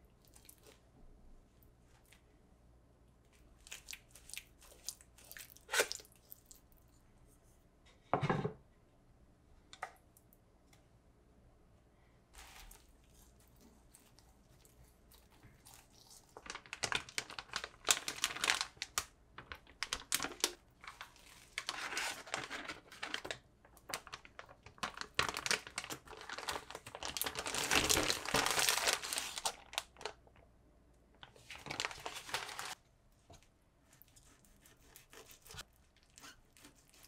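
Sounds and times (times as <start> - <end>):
plastic bag crinkling: 12.4 - 30.4, 31.2 - 32.8.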